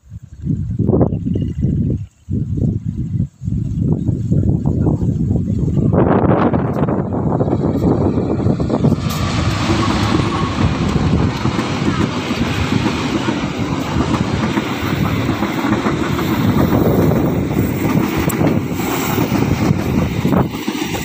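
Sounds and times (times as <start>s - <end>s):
train coaches rolling past: 4.9s - 21.0s
steel wheels clattering on rails: 6.3s - 21.0s.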